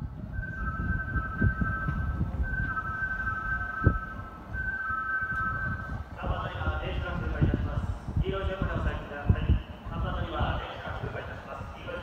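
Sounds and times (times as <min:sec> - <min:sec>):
low rumbling noise: 0:00.0 - 0:12.0
electronic warning tone: 0:00.4 - 0:06.0.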